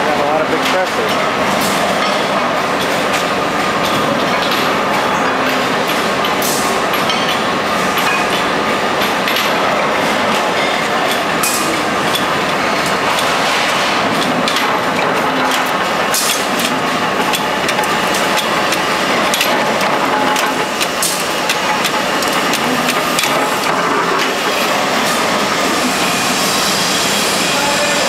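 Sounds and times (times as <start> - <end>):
metal stamping strikes: 0.5 - 26.6.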